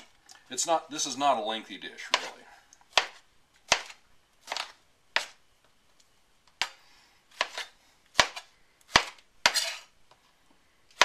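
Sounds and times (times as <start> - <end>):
knife chopping on cutting board: 2.1 - 5.4, 6.6 - 9.8.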